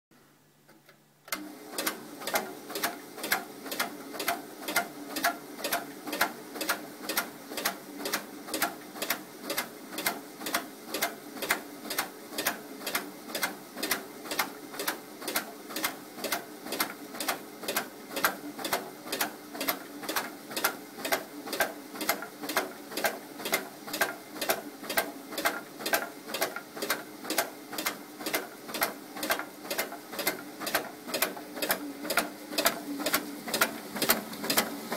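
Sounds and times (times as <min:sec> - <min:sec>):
machine clicking: 0:00.8 - 0:34.9.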